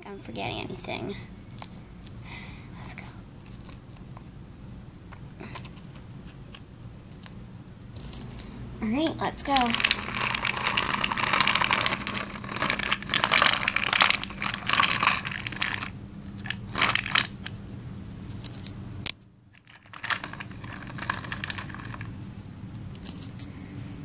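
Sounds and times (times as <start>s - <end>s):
toy car wheels scraping concrete: 9.4s - 17.3s, 19.6s - 22.1s.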